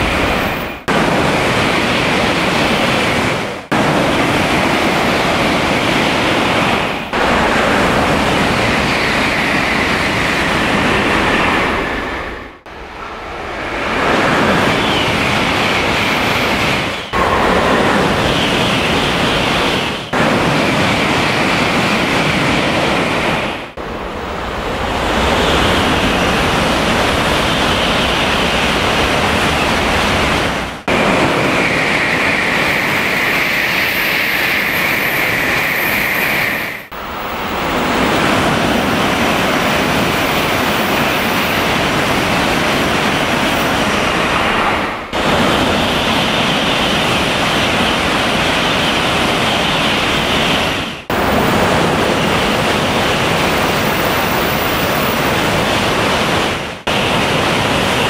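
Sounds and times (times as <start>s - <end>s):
trains passing at speed: 0.0s - 58.0s.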